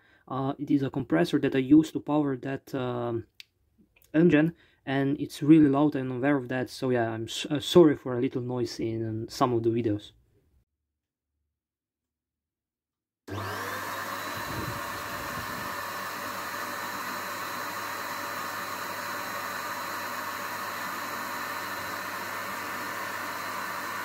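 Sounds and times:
air compressor running: 13.3 - 24.0.

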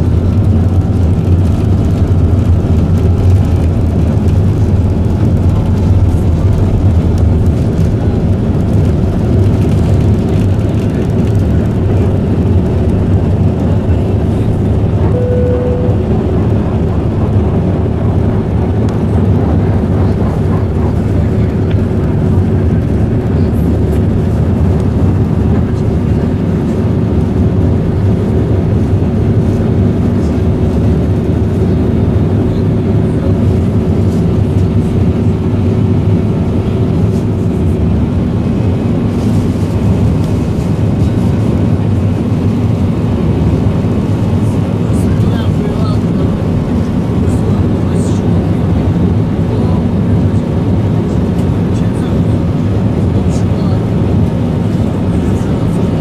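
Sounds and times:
high tone: 15.0 - 17.8.

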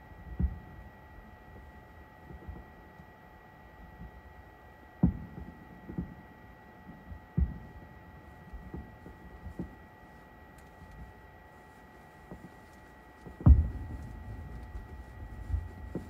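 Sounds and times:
faint steady hum: 0.0 - 16.0
distant firework thuds: 13.2 - 16.0.

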